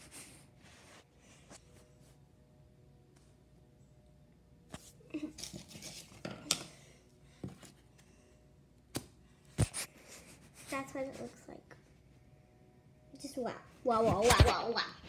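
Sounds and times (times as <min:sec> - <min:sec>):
puzzle pieces rustling and scraping: 0:05.2 - 0:06.6.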